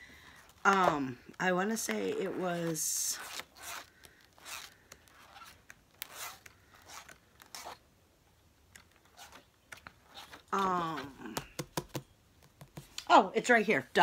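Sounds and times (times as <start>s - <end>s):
paper pages flipping: 8.7s - 12.0s.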